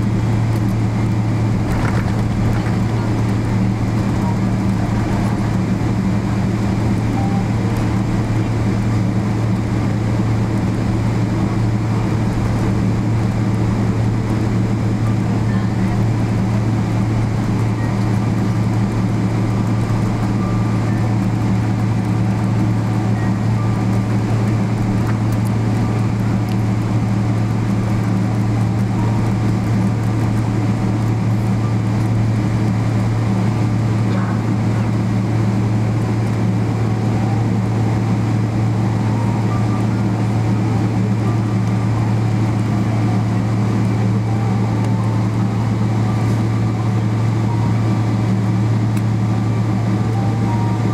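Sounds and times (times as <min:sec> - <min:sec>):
jet engines humming: 0:00.0 - 0:50.9
cabin rushing noise: 0:01.4 - 0:06.2.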